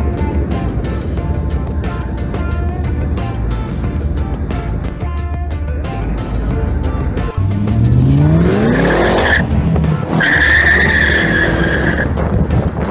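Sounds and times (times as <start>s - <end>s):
car engine accelerating hard: 6.0s - 12.9s
high tyre squeal: 8.0s - 12.2s.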